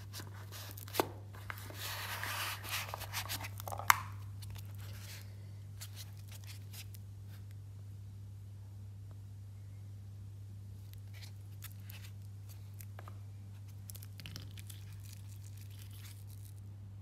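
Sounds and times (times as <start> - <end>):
rustling and scraping: 0.0 - 7.5, 10.8 - 16.6
steady low hum: 0.0 - 17.0.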